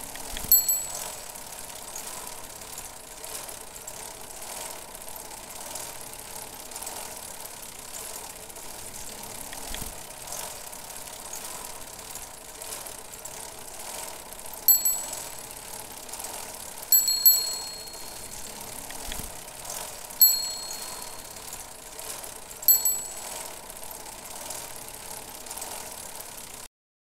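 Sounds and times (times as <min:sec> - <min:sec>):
bicycle bell ringing: 0:00.4 - 0:02.2, 0:14.6 - 0:19.0, 0:19.8 - 0:23.8.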